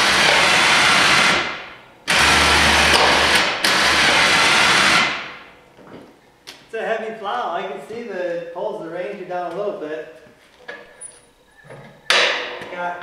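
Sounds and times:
electric winch winding cable: 0.0 - 5.3.

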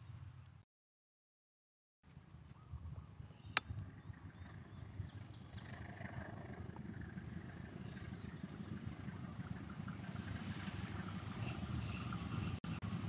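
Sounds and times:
distant diesel locomotive rumble: 2.9 - 13.0.

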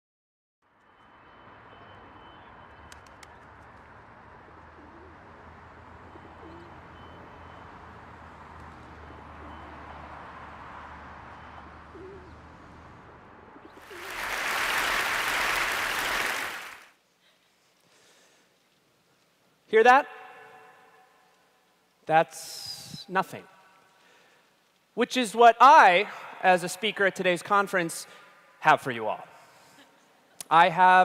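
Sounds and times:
low city rumble: 0.7 - 14.2
pigeons cooing: 4.5 - 5.4, 6.0 - 7.0, 11.4 - 12.9.

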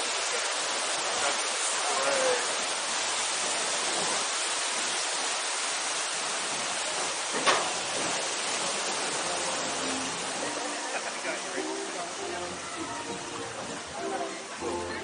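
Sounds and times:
rushing water hiss: 0.0 - 15.0.

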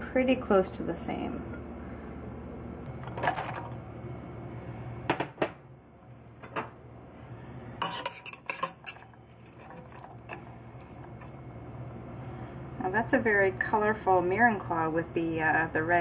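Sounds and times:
metal spoon clinking and scraping: 7.8 - 10.4.

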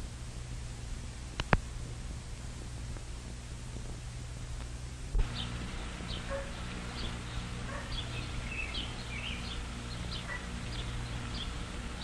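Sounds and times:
steady low hum: 0.0 - 12.0
small birds chirping: 5.2 - 12.0.

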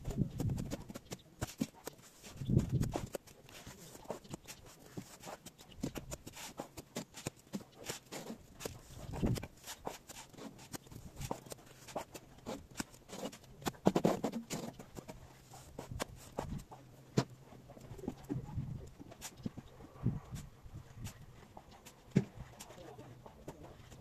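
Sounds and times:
trowel scraping mortar: 0.3 - 16.6.

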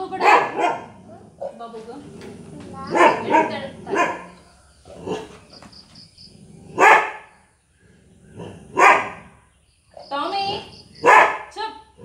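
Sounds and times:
dog barking: 0.0 - 1.6, 2.9 - 5.4, 6.8 - 7.3, 8.7 - 9.3, 11.0 - 11.6.

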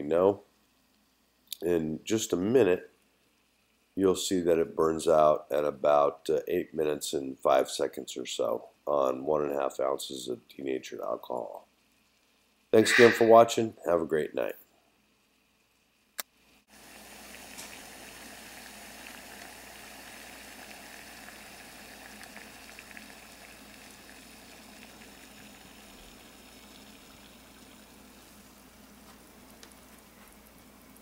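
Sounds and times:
water boiling in pot: 15.0 - 31.0.

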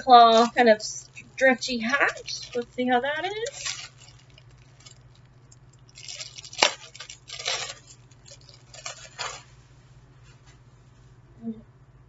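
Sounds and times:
plastic bag crinkling: 0.0 - 9.6.

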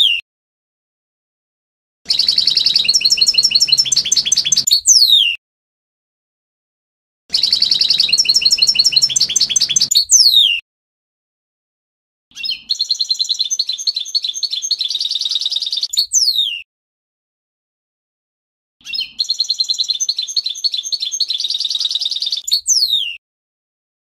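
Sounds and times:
finch singing: 2.1 - 5.4, 7.3 - 10.6, 12.3 - 16.6, 18.8 - 23.2.

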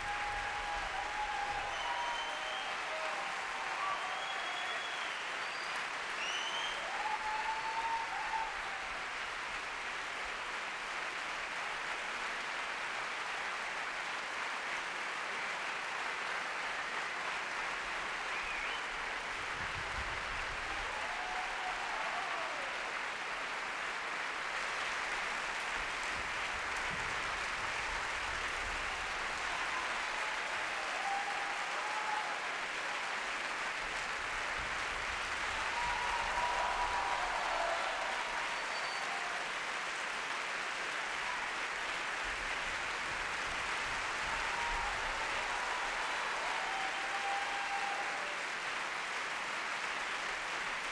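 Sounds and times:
audience calls: 0.0 - 9.9, 20.6 - 23.8, 27.4 - 50.9
audience applauding: 0.0 - 50.9.

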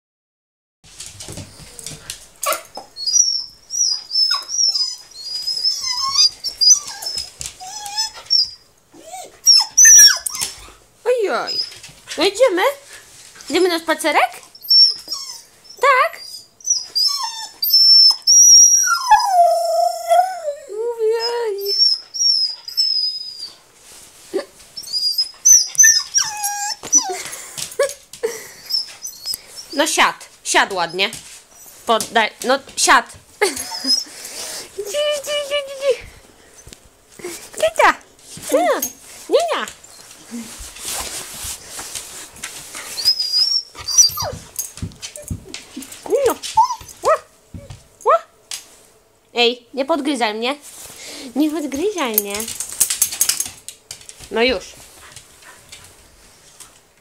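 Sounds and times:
small dog whining: 1.5 - 10.7, 14.6 - 23.6, 24.8 - 27.3, 42.8 - 44.5, 46.6 - 47.8.

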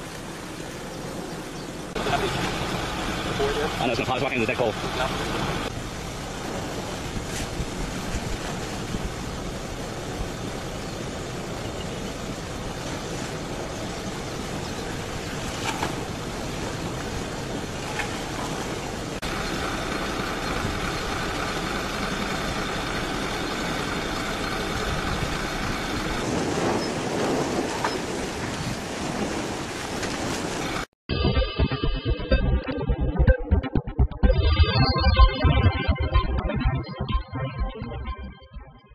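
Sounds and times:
rushing roar of lava flow: 0.0 - 30.9
music: 31.1 - 38.9.

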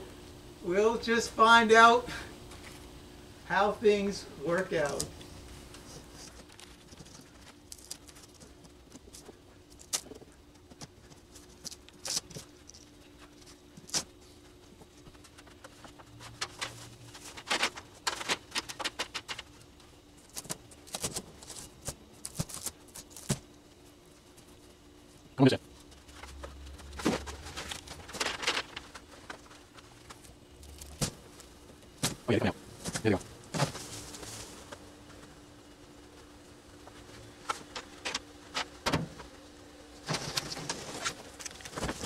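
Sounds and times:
faint low hum: 0.0 - 42.0.

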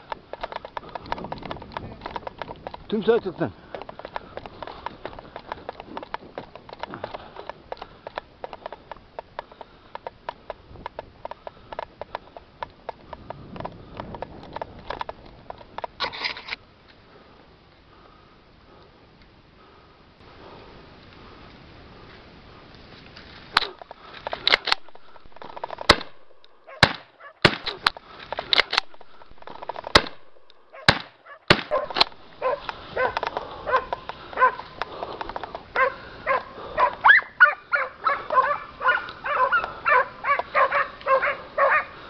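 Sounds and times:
hounds barking and baying: 23.6 - 42.0.

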